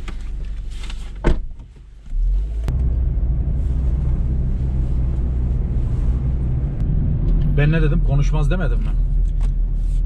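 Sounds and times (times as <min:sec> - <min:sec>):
car engine and road rumble: 0:00.0 - 0:10.0
car door slamming: 0:01.2 - 0:01.7.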